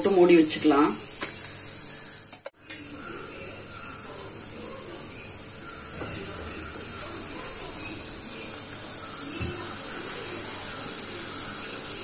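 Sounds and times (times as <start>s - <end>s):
deep-frying sizzling hiss: 0.0s - 12.0s.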